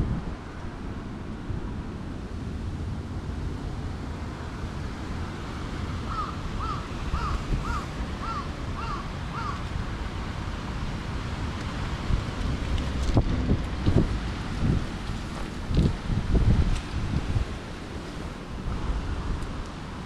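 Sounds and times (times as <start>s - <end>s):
wind rumble on microphone: 0.0s - 20.0s
bird calling: 6.1s - 9.6s.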